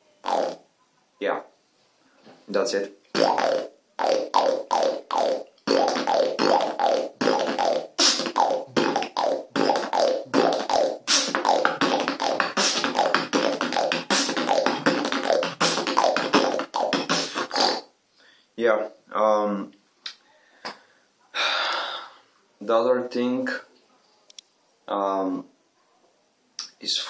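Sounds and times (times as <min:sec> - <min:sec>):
beatbox lip roll: 0:00.2 - 0:00.7, 0:03.1 - 0:17.9.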